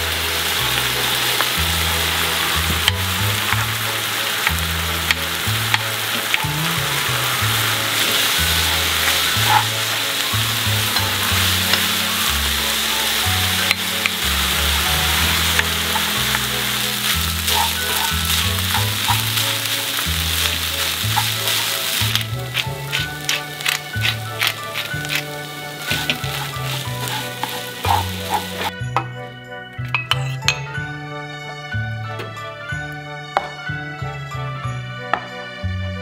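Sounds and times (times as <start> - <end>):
food sizzling in a skillet: 0.0 - 28.8
utensil tapping a pan: 15.0 - 29.1.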